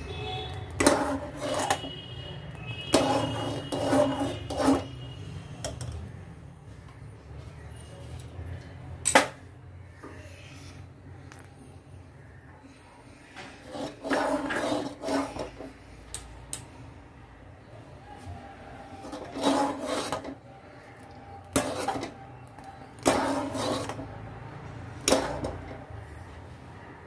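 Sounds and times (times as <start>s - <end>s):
spoon scraping a metal pot: 0.4s - 6.0s, 13.3s - 15.8s, 18.8s - 24.3s, 24.9s - 26.2s.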